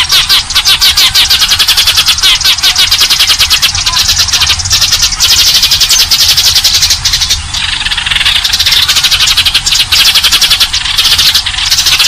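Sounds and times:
sparrows chirping: 0:00.0 - 0:12.0.

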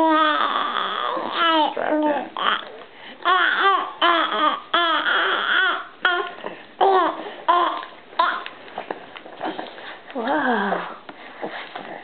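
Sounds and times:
baby squealing and cooing: 0:00.0 - 0:01.8, 0:02.4 - 0:08.4.

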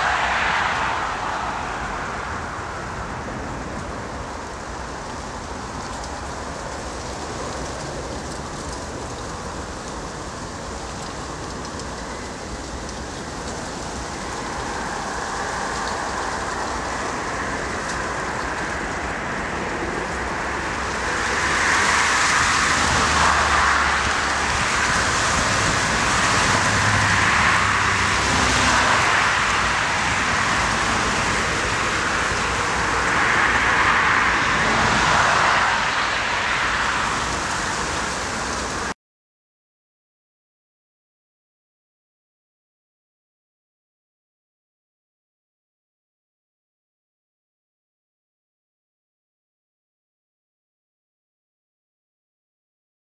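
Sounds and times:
jet engine roar: 0:00.0 - 0:06.2, 0:11.2 - 0:38.9.

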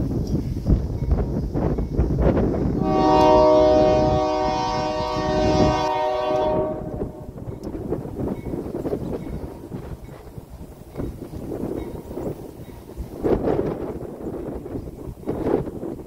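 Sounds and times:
wind rumbling on microphone: 0:00.0 - 0:16.0
locomotive horn blast: 0:02.8 - 0:07.4.

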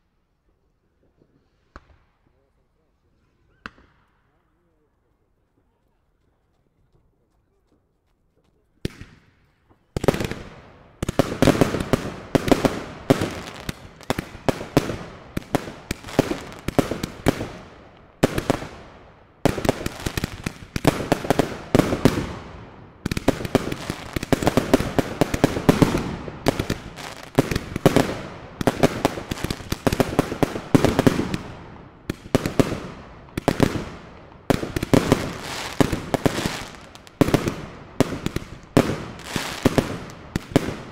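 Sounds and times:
fireworks popping and crackling: 0:08.8 - 0:40.9
fireworks shots firing: 0:09.9 - 0:40.9.

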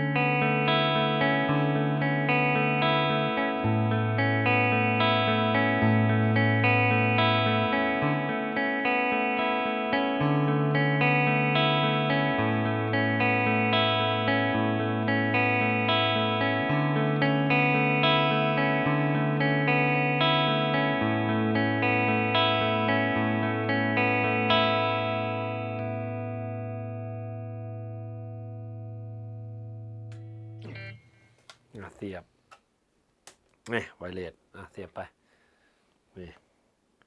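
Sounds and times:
clean electric guitar arpeggios: 0:00.0 - 0:31.4.

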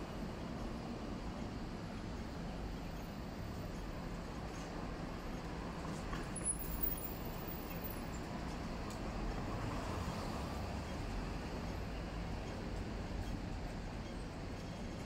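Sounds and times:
rumble of passing vehicles: 0:00.0 - 0:15.0.

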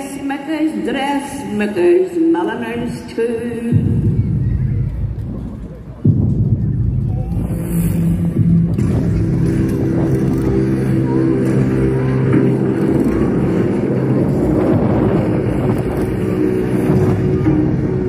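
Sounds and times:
low droning soundscape: 0:03.7 - 0:18.0.

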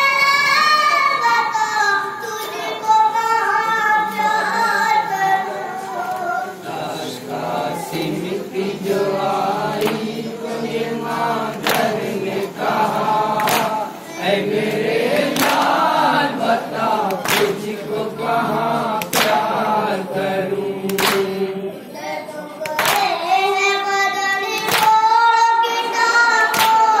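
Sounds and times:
group of voices chanting: 0:06.6 - 0:21.9
chest-beating slaps: 0:11.6 - 0:12.1, 0:13.4 - 0:13.8, 0:15.3 - 0:15.8, 0:17.1 - 0:17.6, 0:19.0 - 0:19.5, 0:20.9 - 0:21.4
boy leading chant into microphone: 0:21.2 - 0:27.0.

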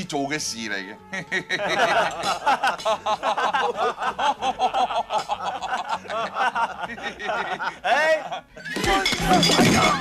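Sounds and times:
men laughing loudly: 0:01.0 - 0:09.6.

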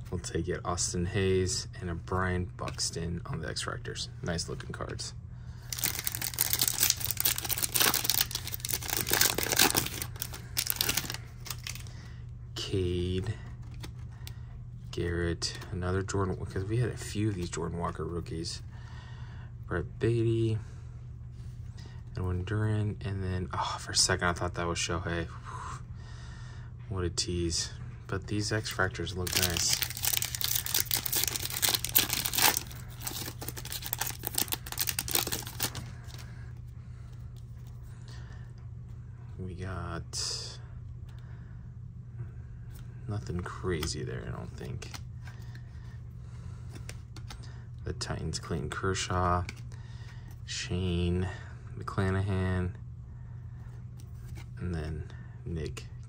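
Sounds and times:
foil wrapper tearing and crinkling: 0:05.7 - 0:11.9, 0:29.2 - 0:36.2.

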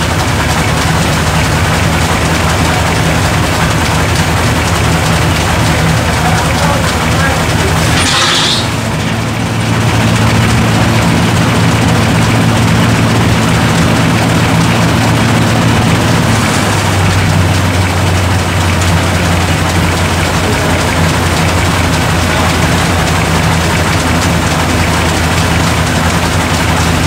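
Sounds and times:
antique tractor engine running: 0:00.0 - 0:27.0.

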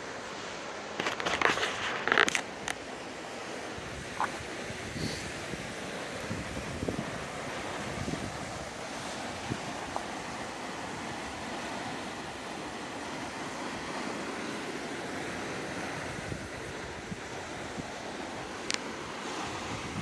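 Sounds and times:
wind buffeting microphone: 0:03.8 - 0:11.5, 0:15.3 - 0:18.6, 0:19.2 - 0:20.0.

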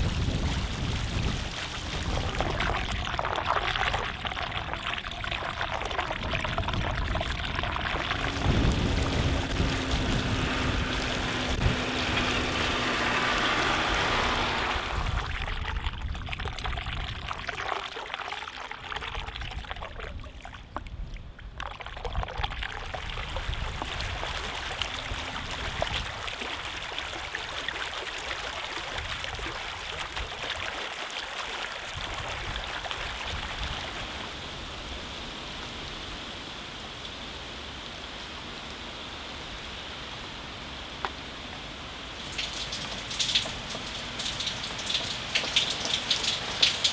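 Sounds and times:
floodwater rushing: 0:00.0 - 0:36.9, 0:40.8 - 0:46.9
tractor engine droning: 0:07.0 - 0:15.4.

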